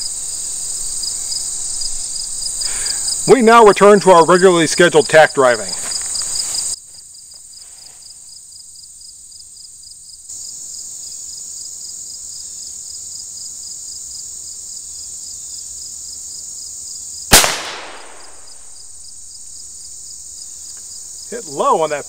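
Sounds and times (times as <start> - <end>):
high insect chirping: 0.0 - 22.0
pistol shot with echo: 17.3 - 18.8.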